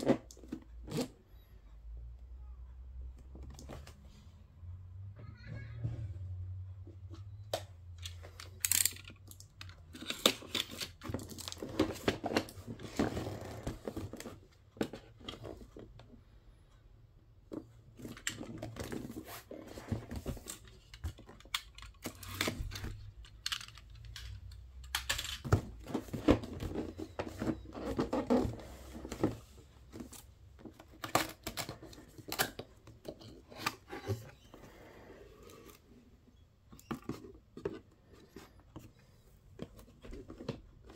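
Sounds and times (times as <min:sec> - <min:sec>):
cardboard rustling and scraping: 0:10.0 - 0:15.9, 0:17.9 - 0:21.3, 0:25.4 - 0:32.3, 0:33.0 - 0:34.8.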